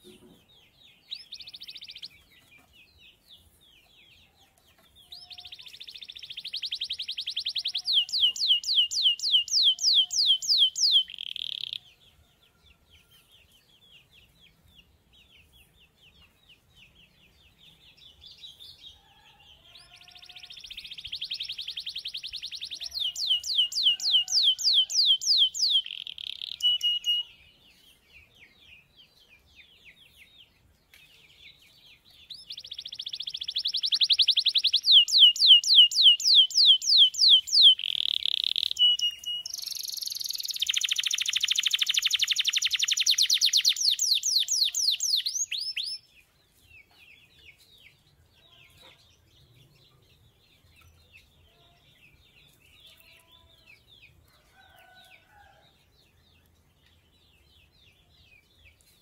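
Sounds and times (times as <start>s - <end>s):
canary singing trills: 0.0s - 3.5s, 4.8s - 12.0s, 19.7s - 27.6s, 32.0s - 46.2s.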